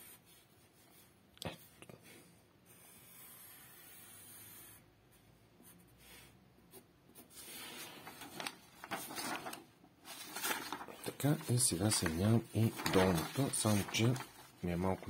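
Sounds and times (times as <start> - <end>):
pencil scratching on paper: 0.0 - 1.1, 2.7 - 7.7
paper rustling: 7.2 - 15.0.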